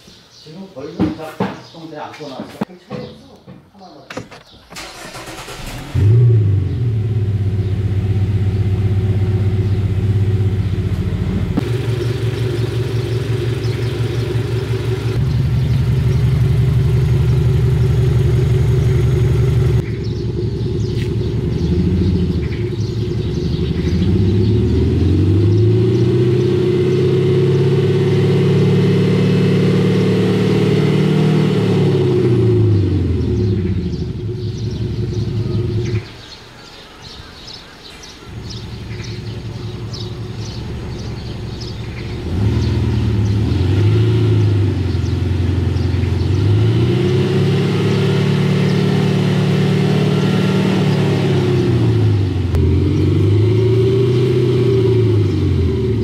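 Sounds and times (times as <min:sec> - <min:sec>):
car engine starting: 0:04.4 - 0:36.1, 0:38.2 - 0:56.0
car engine idling: 0:04.8 - 0:26.2, 0:38.2 - 0:43.8
car engine revving: 0:04.8 - 0:36.0, 0:38.4 - 0:56.0.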